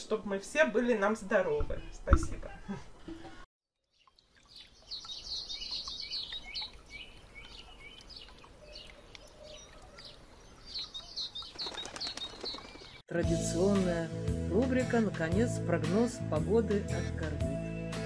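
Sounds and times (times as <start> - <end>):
high bird chirps: 3.9 - 13.0
wings flapping: 11.4 - 13.0.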